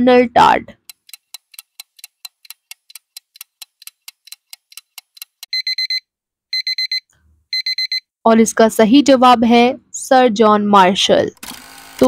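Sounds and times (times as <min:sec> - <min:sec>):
clock ticking fast: 0:00.8 - 0:05.6
alarm clock beeping: 0:04.3 - 0:08.0.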